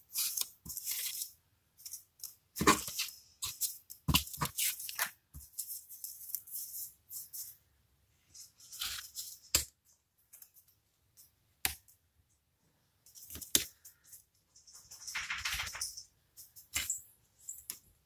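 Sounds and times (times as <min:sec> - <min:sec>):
paper rustling and crinkling: 0:08.3 - 0:09.5.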